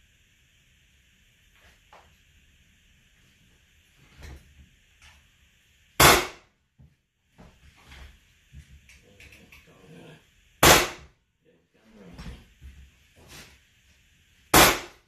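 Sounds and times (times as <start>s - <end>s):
flooring nailer bang: 6.0s - 6.4s, 10.6s - 11.1s, 14.5s - 15.0s.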